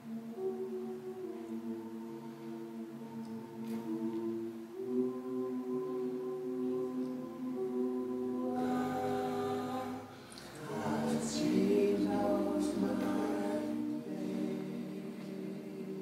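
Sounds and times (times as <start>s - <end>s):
group singing a cappella: 0.0s - 16.0s.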